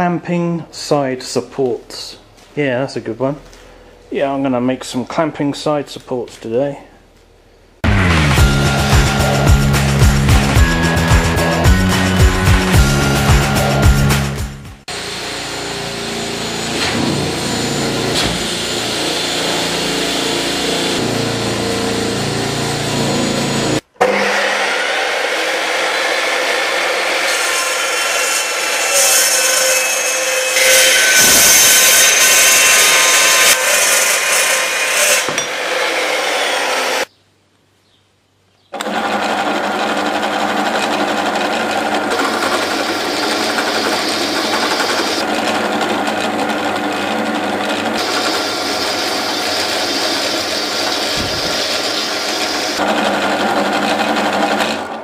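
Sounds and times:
chop saw cutting steel: 0:14.9 - 0:37.1, 0:40.8 - 0:55.0
drill press drilling steel: 0:38.8 - 0:55.0.

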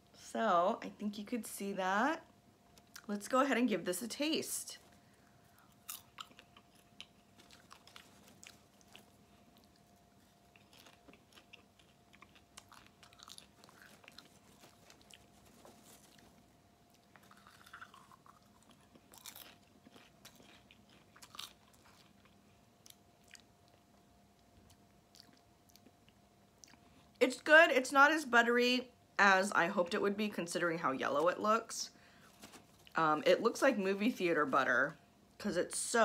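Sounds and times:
chewing popcorn: 0:05.5 - 0:27.2.

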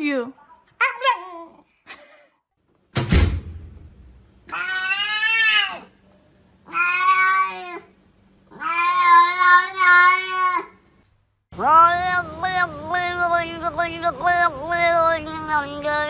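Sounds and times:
sharp thump: 0:03.0 - 0:04.2
cat meowing: 0:06.7 - 0:07.9, 0:08.5 - 0:10.7.

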